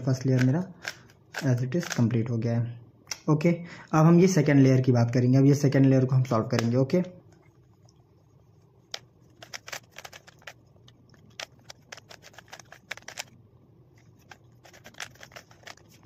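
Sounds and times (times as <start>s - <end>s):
puzzle cube clicking: 0.2s - 2.0s, 8.9s - 13.4s, 14.1s - 16.0s.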